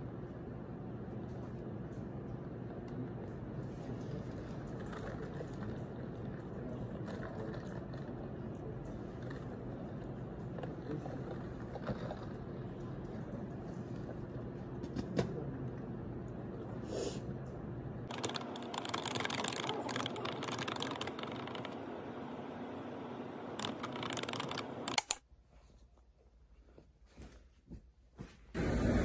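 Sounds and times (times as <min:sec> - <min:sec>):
office room hum: 0:00.0 - 0:29.0
sharp clicks: 0:23.6 - 0:25.2.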